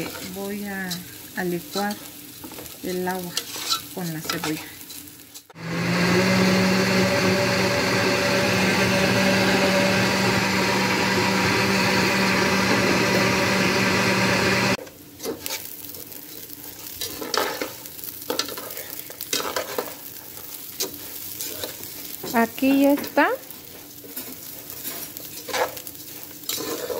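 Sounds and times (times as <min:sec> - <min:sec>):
metal spoon scraping a pan: 0:00.0 - 0:05.5, 0:15.2 - 0:22.4, 0:24.0 - 0:26.9
rice frying: 0:00.0 - 0:26.9
blender running: 0:05.5 - 0:14.8.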